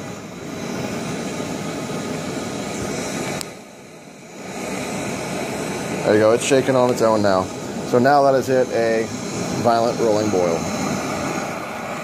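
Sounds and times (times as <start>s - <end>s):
camping stove flame hissing: 0.0s - 12.0s.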